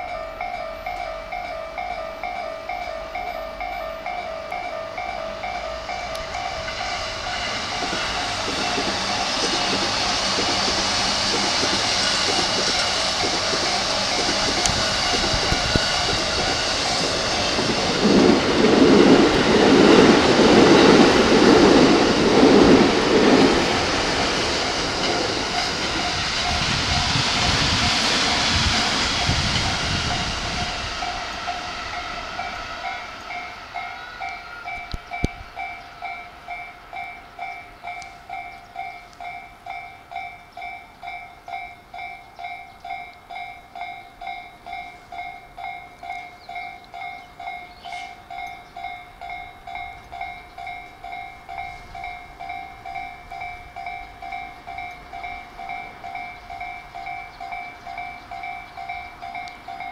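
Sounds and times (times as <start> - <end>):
level crossing bell dinging: 0.0 - 7.5
electric train rumbling past: 0.0 - 59.9.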